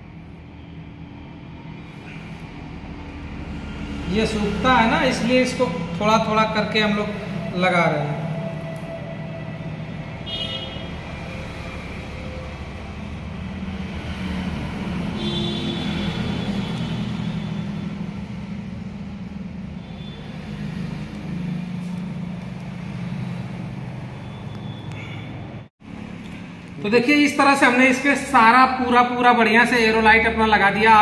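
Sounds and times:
vehicle engine droning: 0.0 - 26.8
short higher tones: 7.0 - 11.4.

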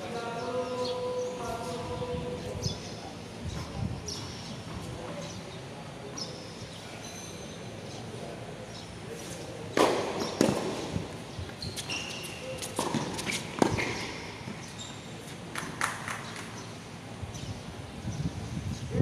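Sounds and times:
tennis shoes squeaking on court: 9.1 - 16.6.

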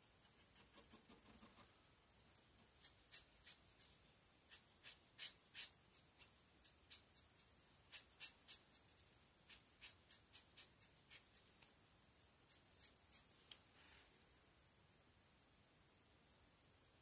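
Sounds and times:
marker nib scratching paper: 0.2 - 13.6.

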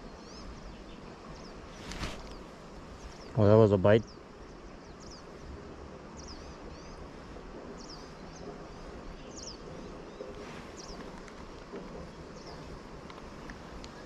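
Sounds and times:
outdoor background hiss: 0.0 - 14.0
small birds chirping: 0.0 - 14.0.

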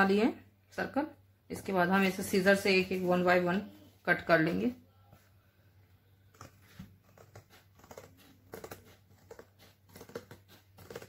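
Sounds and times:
scissors snipping cardboard: 6.3 - 11.0.

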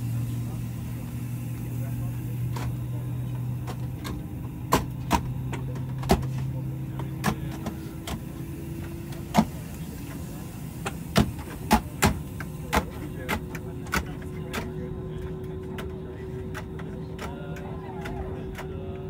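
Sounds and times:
aircraft cabin systems hum: 0.0 - 19.0
sharp clicks and knocks: 3.6 - 6.4.

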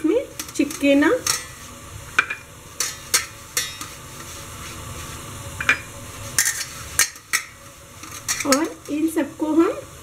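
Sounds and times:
metal plate clinking: 0.4 - 1.6, 2.2 - 4.0, 5.6 - 9.0.

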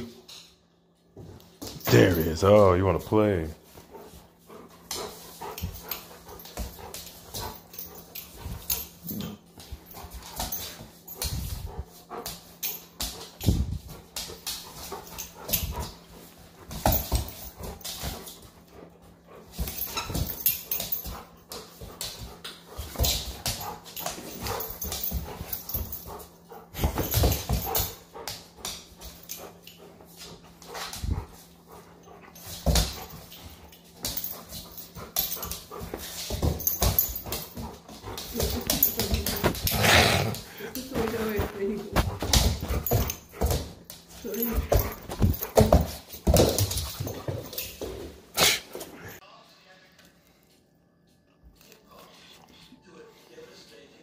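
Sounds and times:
dog noises: 3.6 - 49.2
scuffles and knocks: 40.7 - 48.2.

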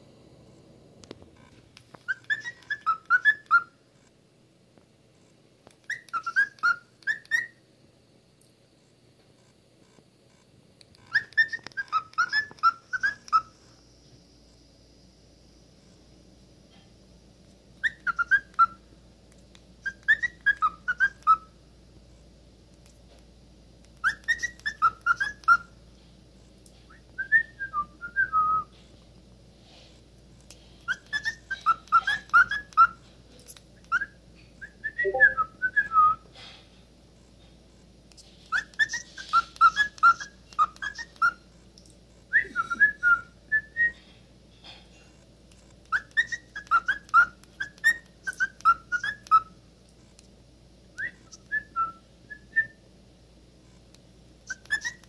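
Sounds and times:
cockatiel chirping whistles: 2.0 - 3.7, 5.8 - 7.6, 11.1 - 13.5, 17.8 - 18.8, 19.8 - 21.5, 24.0 - 25.7, 30.9 - 33.0, 33.8 - 36.2, 38.5 - 41.4, 45.8 - 49.5, 51.0 - 52.8, 54.5 - 55.0.

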